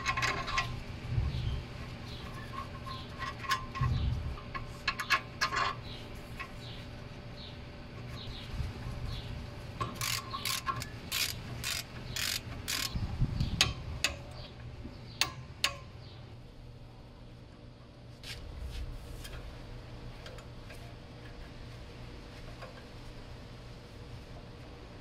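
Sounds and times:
socket ratchet clicking: 0:09.9 - 0:13.0.

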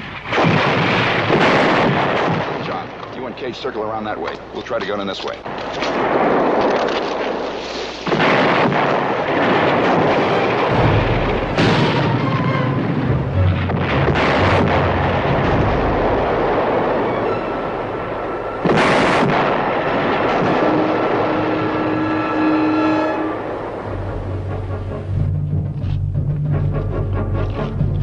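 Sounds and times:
rumble of shellfire: 0:00.0 - 0:03.4, 0:05.4 - 0:22.1
heavy explosions: 0:00.0 - 0:04.5, 0:05.4 - 0:28.0
background music: 0:10.6 - 0:18.7, 0:21.0 - 0:28.0.

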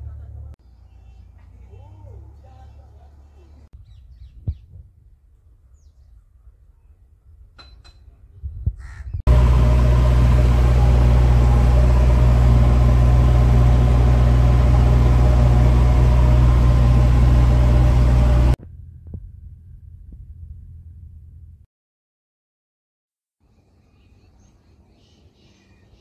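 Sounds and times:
diesel engine running: 0:09.3 - 0:18.6.

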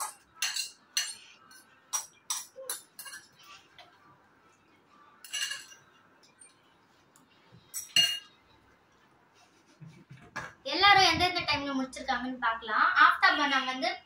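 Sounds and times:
utensils clinking on ceramic bowls: 0:00.0 - 0:03.5, 0:05.2 - 0:06.6, 0:07.7 - 0:08.4.

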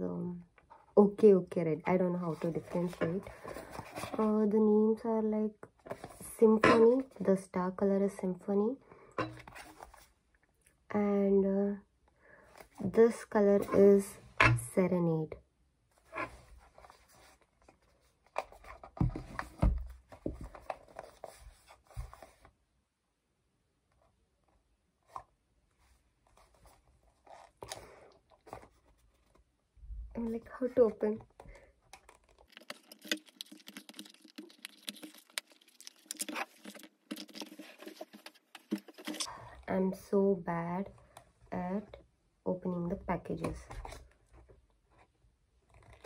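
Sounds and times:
cardboard scraping and rubbing: 0:32.2 - 0:39.3.

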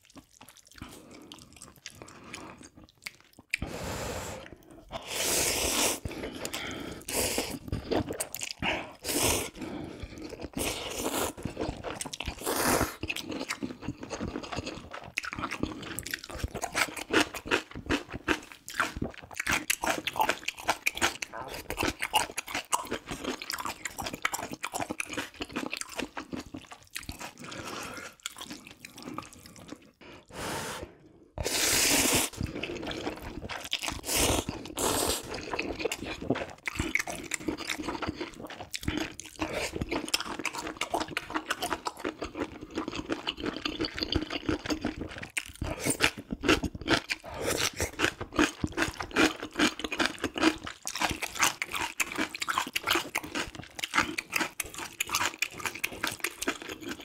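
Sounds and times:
chewing: 0:00.0 - 0:03.7, 0:05.9 - 0:30.0, 0:31.4 - 0:57.0
wet slurping of noodles: 0:03.6 - 0:11.4, 0:12.3 - 0:13.1, 0:27.3 - 0:36.1.

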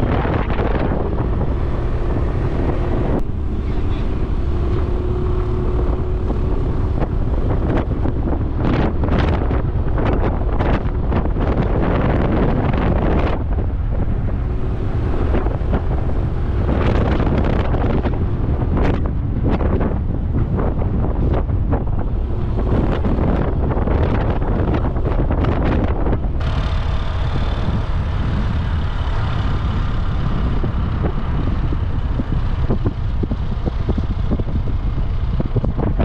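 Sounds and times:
road noise: 0:00.0 - 0:36.0
wind buffeting microphone: 0:00.0 - 0:36.0
scooter engine running: 0:22.2 - 0:36.0.

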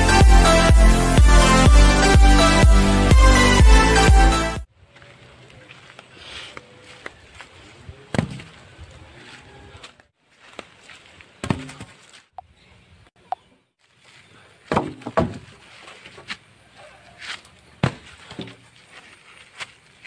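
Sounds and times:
wooden logs dropped on pile: 0:11.4 - 0:12.1, 0:14.6 - 0:16.4, 0:17.8 - 0:18.7.

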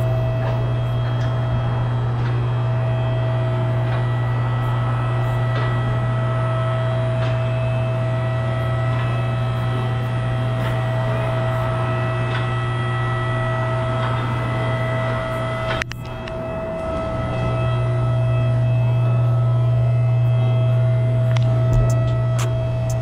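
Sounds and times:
hydraulic pump motor humming: 0:00.0 - 0:23.0.

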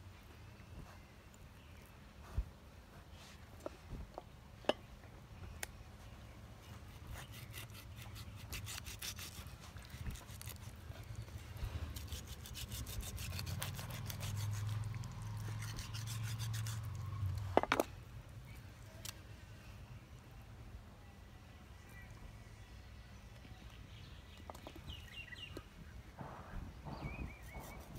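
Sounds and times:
knife sawing through fish: 0:07.1 - 0:10.8, 0:11.9 - 0:16.9.

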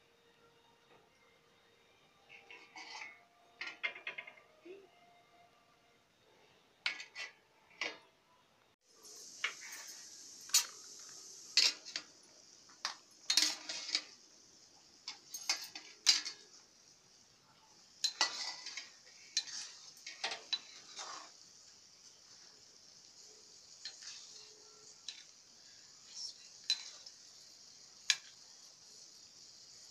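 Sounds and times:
metal lid and spoon clanking: 0:02.3 - 0:04.5, 0:06.8 - 0:08.1, 0:09.4 - 0:10.8, 0:11.6 - 0:12.1, 0:12.8 - 0:14.2, 0:15.0 - 0:16.6, 0:18.0 - 0:21.3
steady high hiss: 0:08.8 - 0:29.9.

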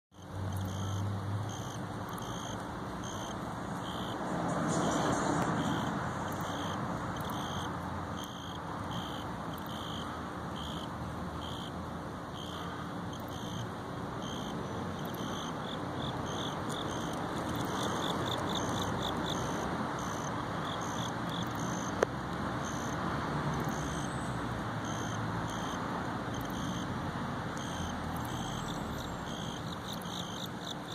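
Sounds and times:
distant traffic rumble: 0:00.1 - 0:30.9.

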